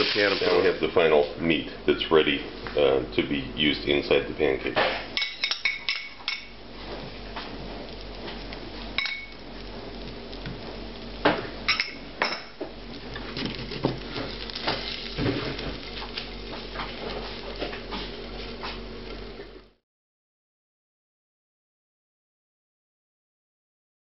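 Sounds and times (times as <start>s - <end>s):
metal spoon clinking on dishes: 9.0s - 9.4s.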